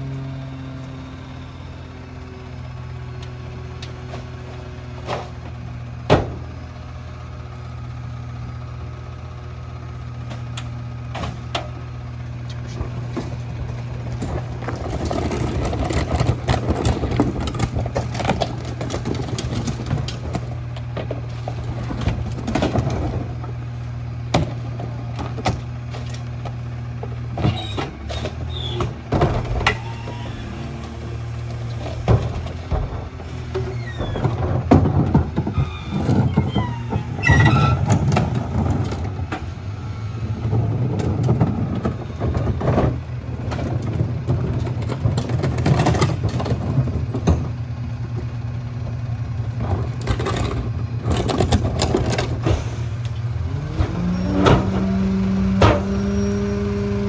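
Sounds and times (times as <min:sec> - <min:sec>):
garbage truck engine idling: 0:00.0 - 0:57.0
trash carts rattling on pavement: 0:00.0 - 0:57.0
cart knocking against hopper: 0:55.5 - 0:56.0.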